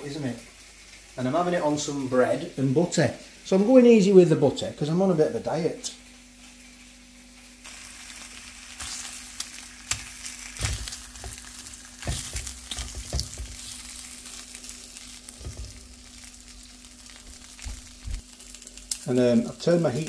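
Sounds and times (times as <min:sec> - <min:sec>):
bacon sizzling in a frying pan: 0:00.0 - 0:20.0
tongs tapping a pan: 0:10.6 - 0:13.7.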